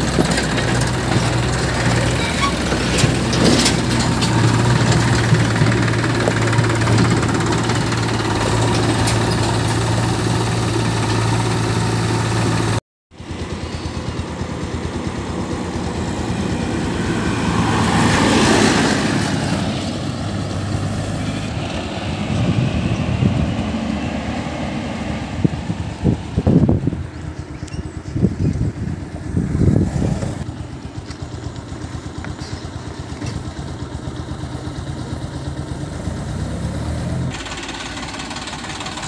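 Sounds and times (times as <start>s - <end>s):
tractor diesel engine running: 0.0s - 39.0s
tractor driving by: 0.0s - 39.0s.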